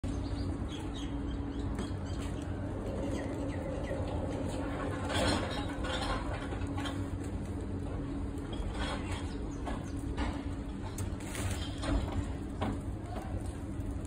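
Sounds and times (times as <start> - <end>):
small birds chirping: 0.0 - 4.8
steady low hum: 0.0 - 14.0.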